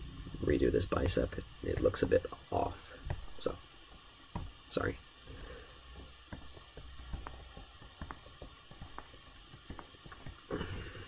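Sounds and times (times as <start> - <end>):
low steady hum: 0.0 - 11.0
stylus tapping on tablet: 3.0 - 4.6, 5.3 - 10.5.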